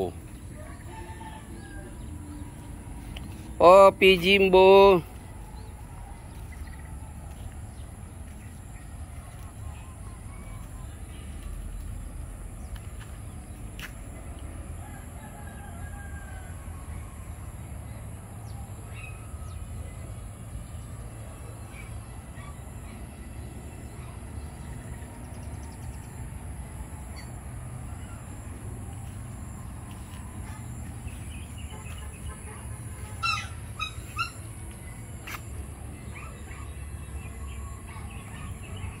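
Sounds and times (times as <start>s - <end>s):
steady low rumble: 0.0s - 4.4s, 5.0s - 14.9s
faint bird calls: 30.4s - 34.5s.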